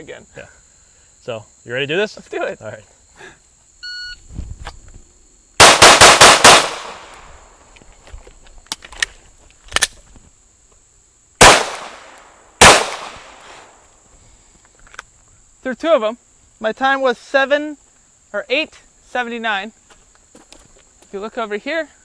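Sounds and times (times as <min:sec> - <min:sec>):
insects buzzing: 0:00.0 - 0:22.0
handgun shots: 0:05.6 - 0:07.2, 0:11.4 - 0:13.4.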